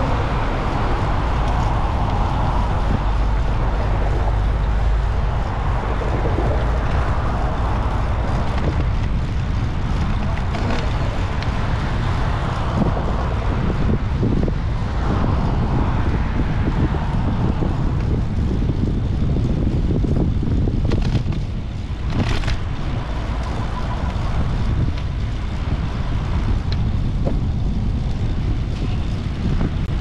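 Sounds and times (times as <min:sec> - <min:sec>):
tyres rumbling on path: 0:00.0 - 0:30.0
wind buffeting microphone: 0:00.0 - 0:30.0.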